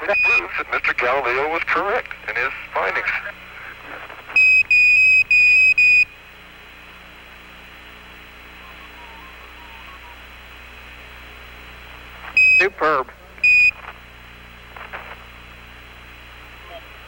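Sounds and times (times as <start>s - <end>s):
high radio beeps: 0.0s - 1.0s, 4.3s - 6.1s, 12.3s - 13.8s
radio hiss: 0.0s - 17.0s.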